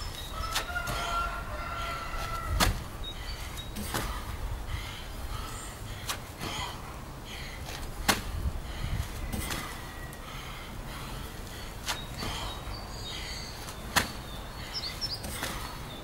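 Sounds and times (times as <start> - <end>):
hands and feet scuffing gravel: 0.4 - 1.2
sharp slaps: 2.5 - 2.9, 8.0 - 8.3, 13.9 - 14.2
heavy breathing: 3.2 - 13.8.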